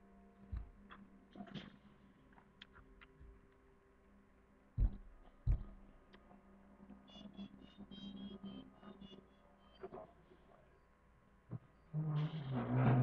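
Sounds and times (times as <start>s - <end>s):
low room hum: 0.0s - 13.0s
dull low thumps: 4.8s - 5.9s.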